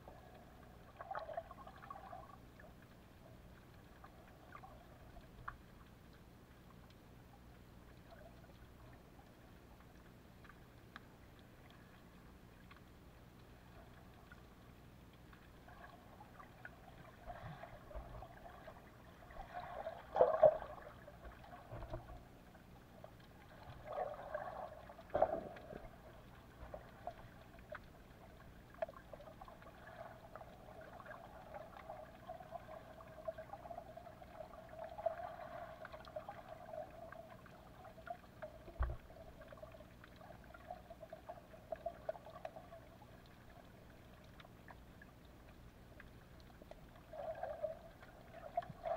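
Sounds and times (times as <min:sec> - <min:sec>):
muffled underwater sea water: 0:00.0 - 0:48.9
water sloshing surges: 0:15.4 - 0:42.8, 0:46.5 - 0:48.9.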